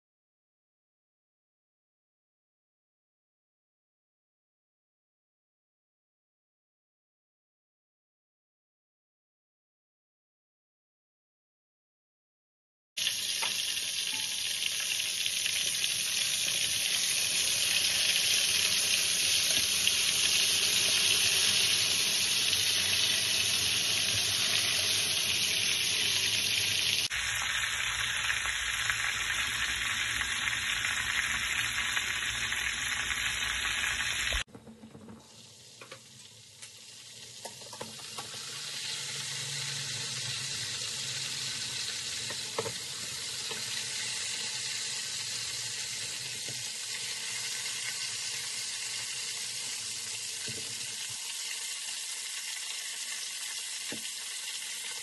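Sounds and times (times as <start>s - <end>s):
fish sizzling in hot oil: 13.0s - 34.5s, 35.4s - 55.0s.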